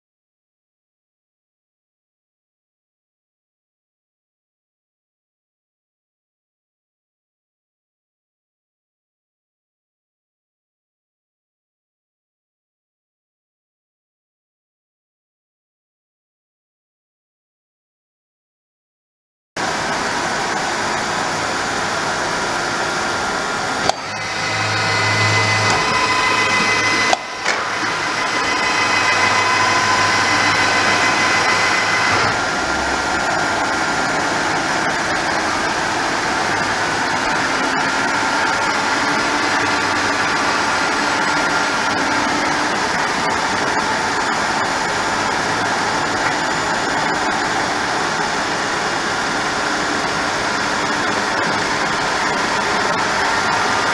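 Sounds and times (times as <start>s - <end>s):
milling machine whirring: 19.6s - 53.9s.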